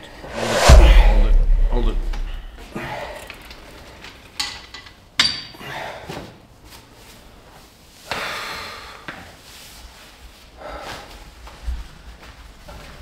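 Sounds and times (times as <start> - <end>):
heavy exhale: 2.4 - 3.3, 5.6 - 6.2, 8.1 - 9.1.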